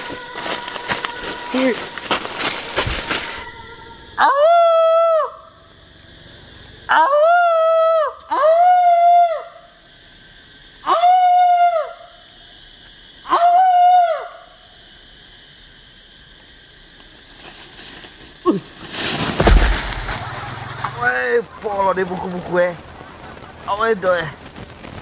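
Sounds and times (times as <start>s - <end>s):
man howling: 2.9s - 5.5s, 6.9s - 9.4s
loud crash of a fall: 19.0s - 21.0s.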